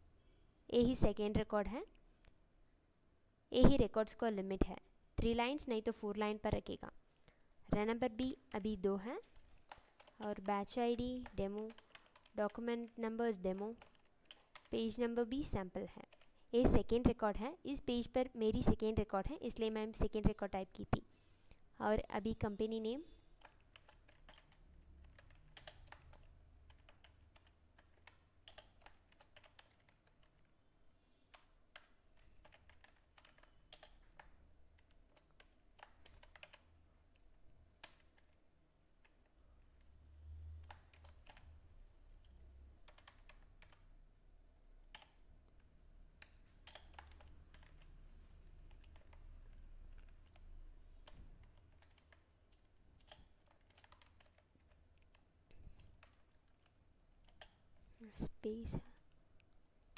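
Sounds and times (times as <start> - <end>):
typing on computer keyboard: 8.5 - 15.1, 16.0 - 16.9, 23.4 - 30.5, 31.3 - 38.4, 39.0 - 39.9, 40.5 - 43.9, 44.5 - 45.3, 46.2 - 57.8.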